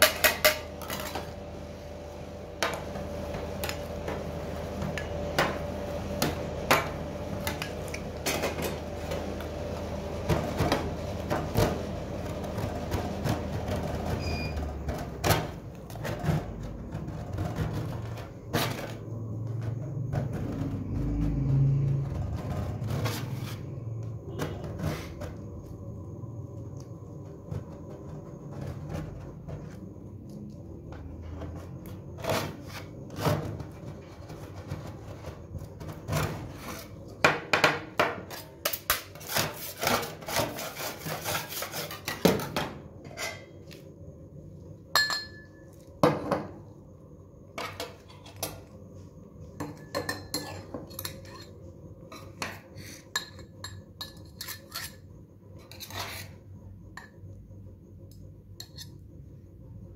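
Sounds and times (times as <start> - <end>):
steady machine hum: 0.0 - 59.9
metal spatulas scraping metal plate: 22.5 - 25.3, 38.3 - 43.5, 54.0 - 55.0, 55.6 - 56.4.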